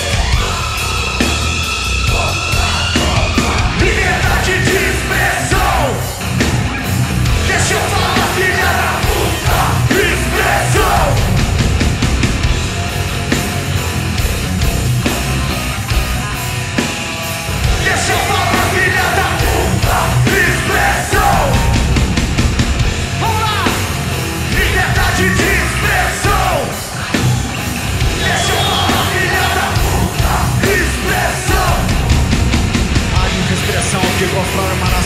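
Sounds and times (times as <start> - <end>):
punk rock band playing: 0.0 - 35.0
shouted vocals: 1.9 - 11.4, 17.6 - 22.0, 23.2 - 32.2.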